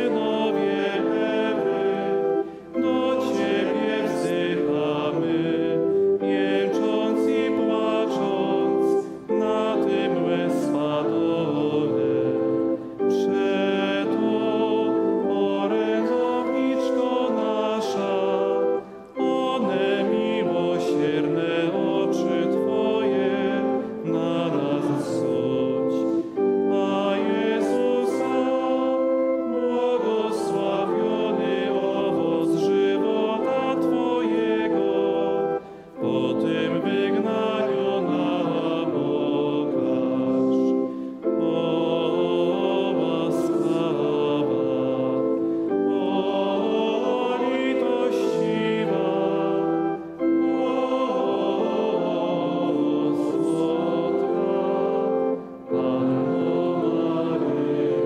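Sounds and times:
voices singing a slow hymn: 0:00.0 - 0:58.0.

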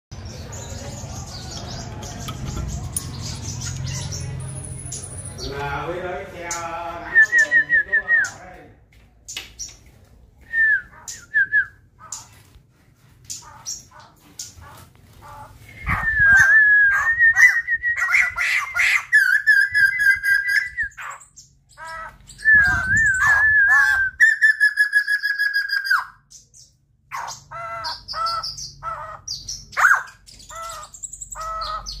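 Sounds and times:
bird calling: 0:13.3 - 0:32.0.

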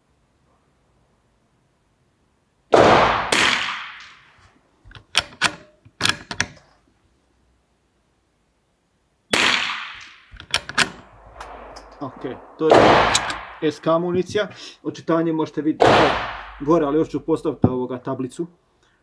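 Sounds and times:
rifle shots: 0:02.7 - 0:04.3, 0:09.3 - 0:14.0, 0:15.8 - 0:16.8
rifle bolt metallic clicks: 0:04.9 - 0:06.6, 0:10.0 - 0:12.0, 0:13.1 - 0:13.5.

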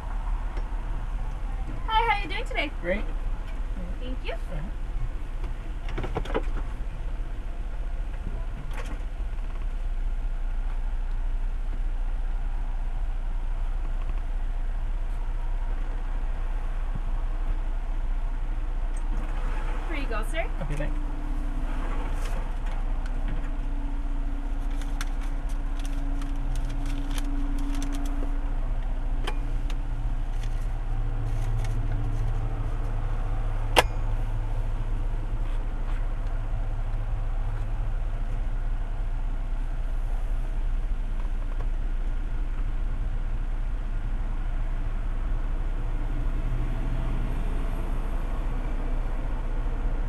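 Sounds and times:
car engine idling: 0:00.0 - 0:50.0
card and receipt rattling: 0:24.6 - 0:28.2.

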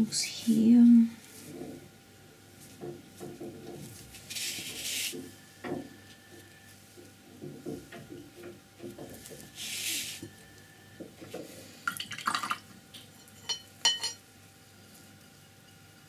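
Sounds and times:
brush and hands rubbing paper: 0:00.0 - 0:01.9, 0:02.5 - 0:05.6, 0:08.8 - 0:10.4
short hissing swishes: 0:09.6 - 0:10.2.

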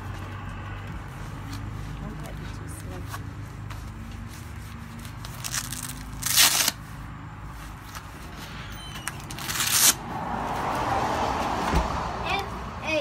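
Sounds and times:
velcro crackling: 0:02.8 - 0:10.0
velcro straps ripping: 0:04.4 - 0:06.9, 0:09.0 - 0:10.0.

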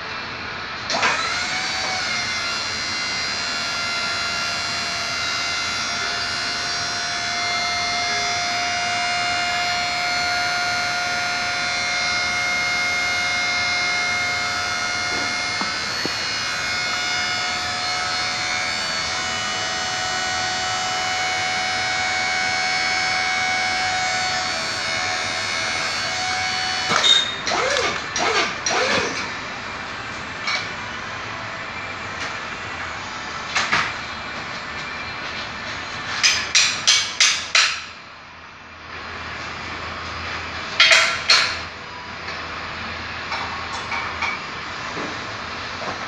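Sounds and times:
drill rig running with high whine: 0:00.0 - 0:31.8.

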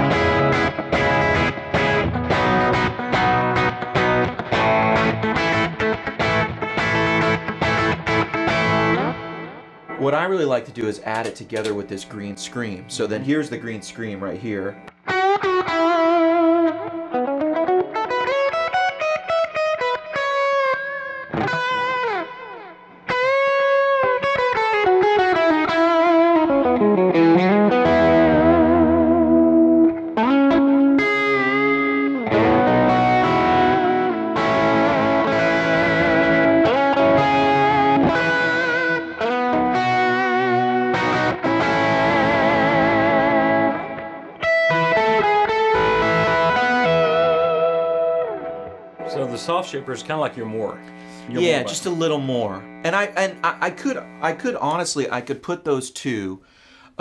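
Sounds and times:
lightly overdriven electric guitar: 0:00.0 - 0:54.7.

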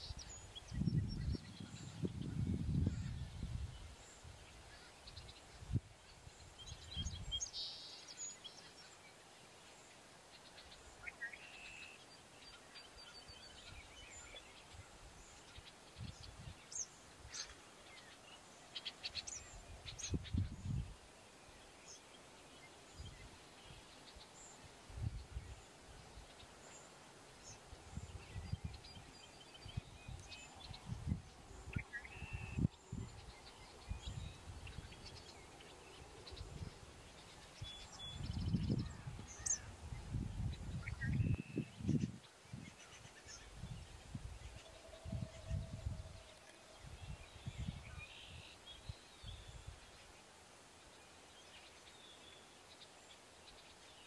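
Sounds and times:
wind on microphone: 0:00.0 - 0:04.5, 0:06.6 - 0:07.4, 0:19.7 - 0:21.0, 0:24.9 - 0:25.6, 0:27.8 - 0:35.2, 0:37.6 - 0:49.8
birds chirping and trilling: 0:00.0 - 0:09.1, 0:09.7 - 0:50.2.

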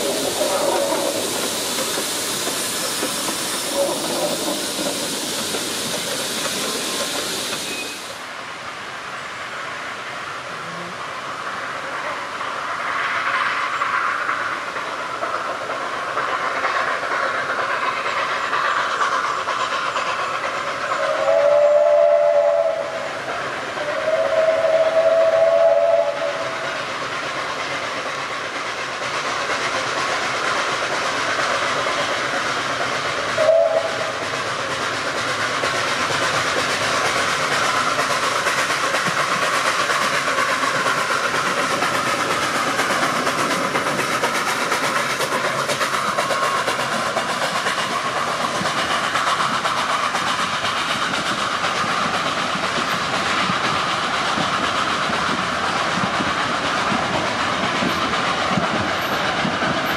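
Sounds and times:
train running noise: 0:00.0 - 0:59.9
steam locomotive chime whistle: 0:07.5 - 0:08.2, 0:21.0 - 0:23.1, 0:23.8 - 0:26.5, 0:33.4 - 0:34.1.

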